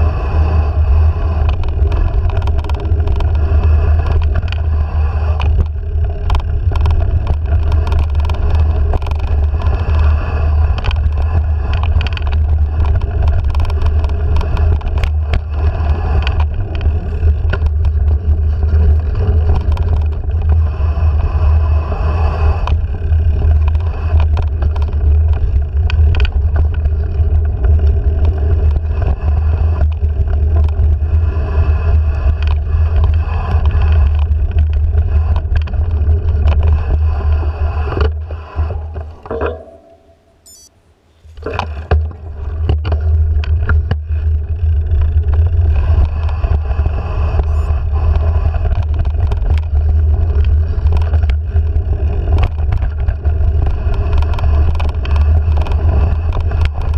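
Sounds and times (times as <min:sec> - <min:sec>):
tyres rumbling on dirt: 0:00.0 - 0:39.8, 0:41.3 - 0:56.9
bike clicks and rattles: 0:00.0 - 0:40.2, 0:41.3 - 0:56.9
wind noise: 0:00.0 - 0:40.6.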